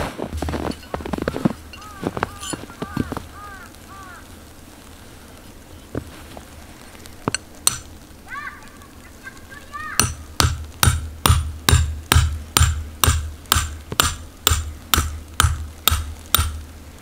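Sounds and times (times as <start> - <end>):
hammer striking metal stake: 7.3 - 7.9, 10.0 - 16.6.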